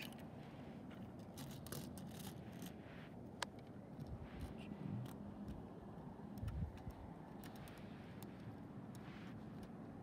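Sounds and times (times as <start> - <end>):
light plastic clicks: 3.4 - 9.8.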